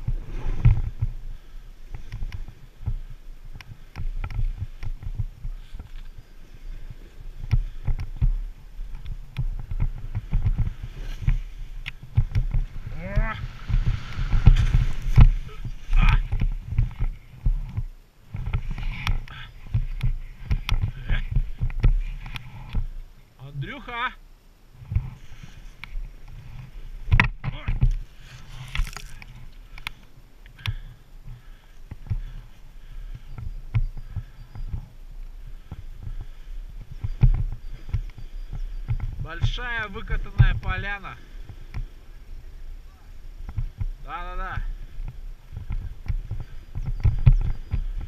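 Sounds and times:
snowboard sliding through snow: 0.0 - 3.4, 4.4 - 22.2
knocks and bumps on camera: 4.0 - 6.0, 7.4 - 22.9, 26.2 - 28.0, 35.7 - 39.3, 45.0 - 48.0.

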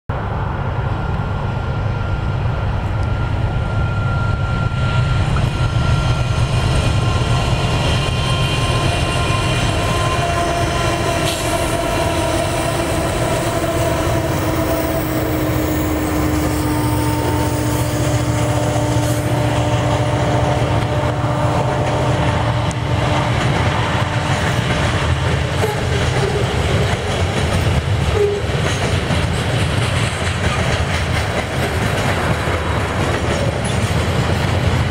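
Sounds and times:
diesel locomotives rumbling: 0.1 - 34.9
falling drawn-out tones: 0.2 - 26.8
train wheels clickety-clack: 4.0 - 34.9.

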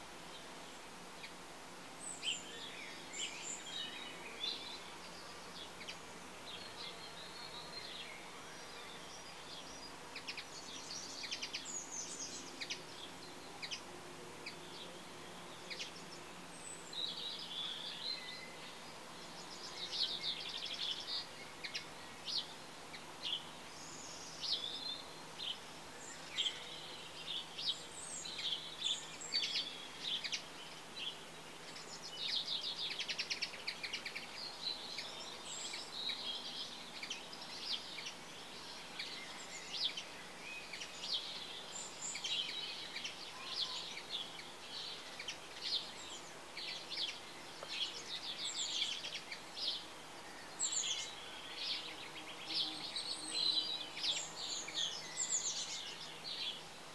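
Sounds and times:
faint steady background noise: 0.0 - 56.9
small birds chirping: 0.0 - 56.9.

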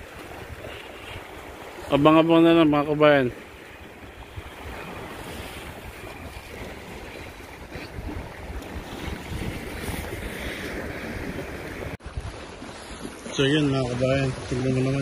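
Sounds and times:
waves washing against rocks: 0.0 - 15.0
wind gusting on microphone: 3.4 - 15.0.

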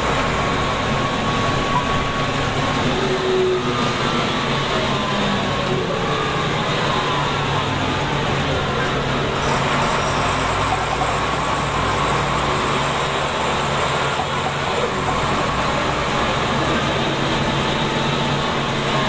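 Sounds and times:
diesel bus engine droning: 0.0 - 19.0.

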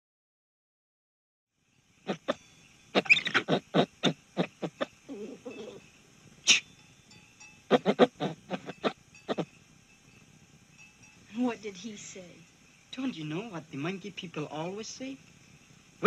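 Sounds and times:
monkey yelping: 2.1 - 2.4, 3.0 - 5.8, 7.7 - 9.4.

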